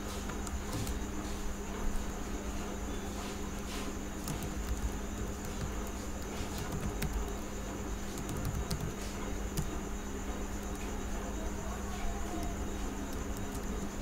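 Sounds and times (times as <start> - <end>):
background hum and hiss: 0.0 - 14.0
keyboard keys clicking: 4.2 - 7.4, 8.0 - 9.8, 12.2 - 14.0.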